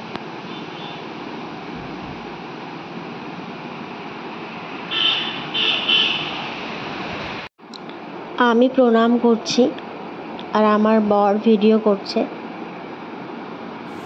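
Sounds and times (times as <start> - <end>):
steady rushing forest noise: 13.6 - 14.0.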